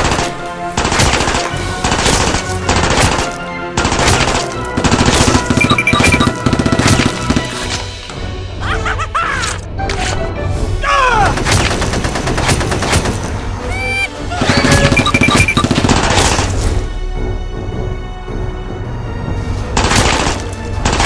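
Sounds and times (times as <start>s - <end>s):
gunfire bursts: 0.0s - 7.6s, 14.5s - 16.6s
background music: 0.0s - 21.0s.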